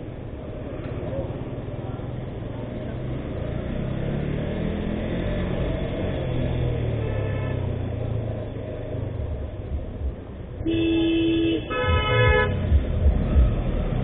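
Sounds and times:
motorcycle engine rumble: 0.0 - 14.0
vehicle horns honking: 6.8 - 7.9, 10.6 - 12.8.

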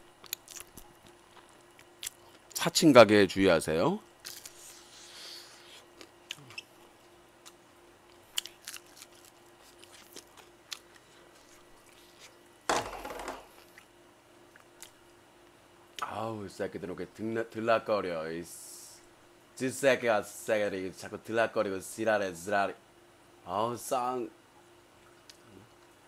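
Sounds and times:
chewing crispy fried chicken: 0.1 - 2.6, 4.2 - 12.5.

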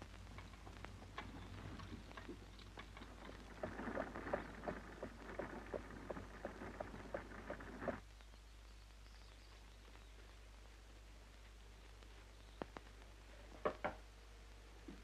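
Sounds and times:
horse hooves clopping: 0.0 - 8.0
low film soundtrack hum: 0.0 - 15.0
buggy rattling: 2.7 - 8.0.

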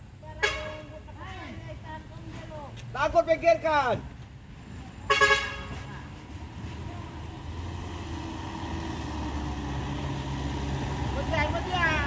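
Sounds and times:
vehicle horn toot: 0.4 - 1.0, 5.1 - 5.9
truck engine running low: 6.1 - 12.0.

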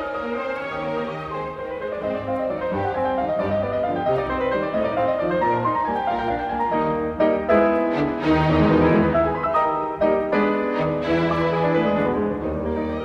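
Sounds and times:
classical piano music: 0.0 - 13.0.

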